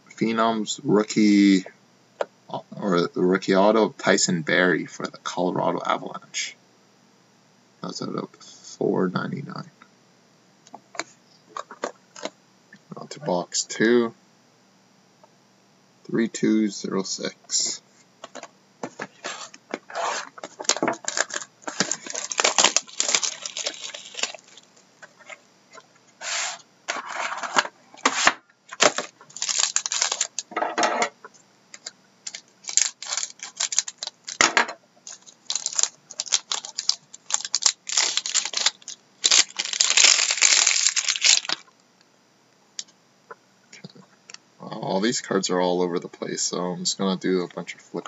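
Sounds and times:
foil wrapper crinkling: 20.2 - 25.4, 28.7 - 30.5, 31.7 - 41.7.

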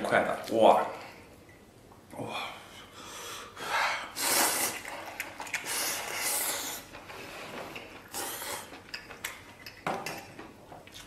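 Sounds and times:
person slurping noodles: 4.0 - 8.9.

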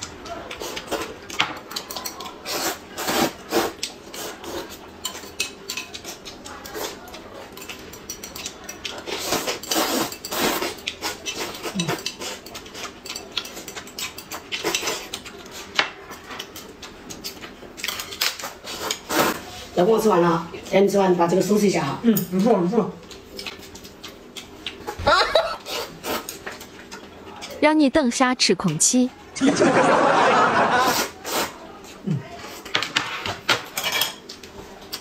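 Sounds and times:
chopsticks clicking against bowls: 0.0 - 2.5, 3.8 - 19.0, 22.1 - 24.9, 26.3 - 27.6, 33.8 - 35.0
noodles being slurped: 9.0 - 12.4.

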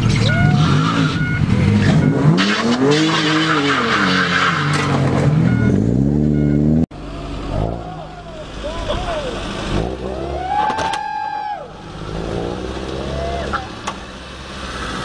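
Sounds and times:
car engine revving hard: 9.4 - 10.5, 11.8 - 15.0.

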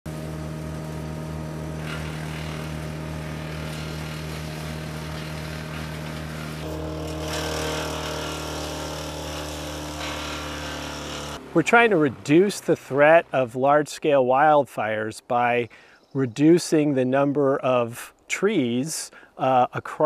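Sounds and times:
wood chipper engine running: 0.1 - 13.4.

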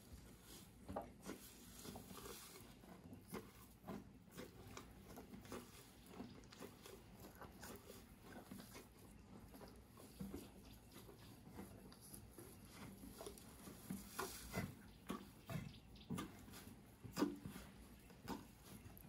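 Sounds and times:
animal chewing dry hay: 0.0 - 19.0.

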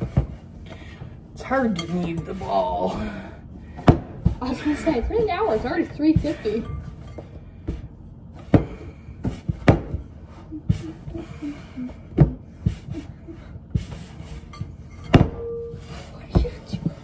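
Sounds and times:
dough thumping on work surface: 8.5 - 10.1.

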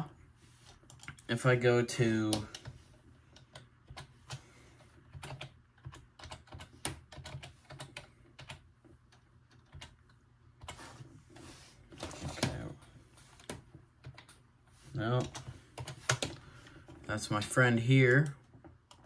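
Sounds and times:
typing on computer keyboard: 2.3 - 4.4, 5.1 - 10.8, 15.2 - 17.1.

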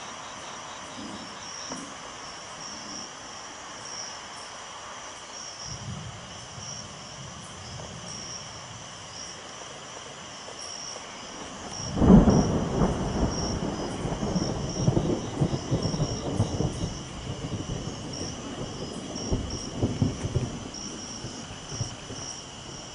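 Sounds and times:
crickets chirping: 0.0 - 22.9
thunder rumbling: 11.3 - 22.9.

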